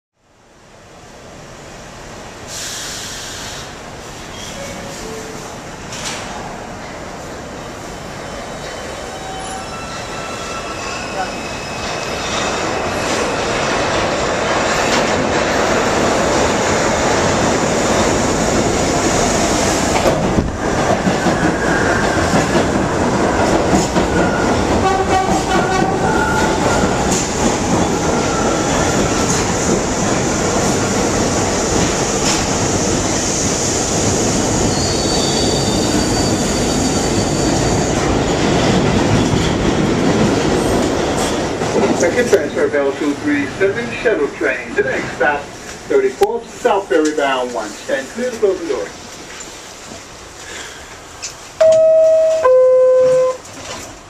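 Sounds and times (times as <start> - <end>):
subway train rumble: 0.2 - 54.0.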